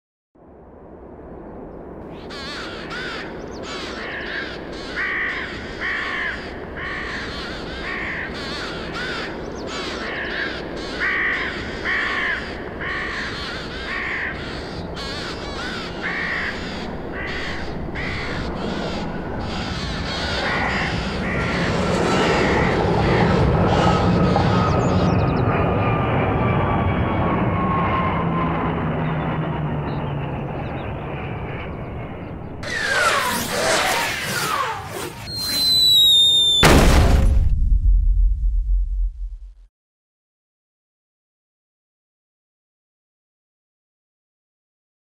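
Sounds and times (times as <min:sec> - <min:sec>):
jet airliner engines: 0:00.4 - 0:36.7
steady high whine: 0:00.4 - 0:36.8
crows cawing: 0:02.1 - 0:25.3.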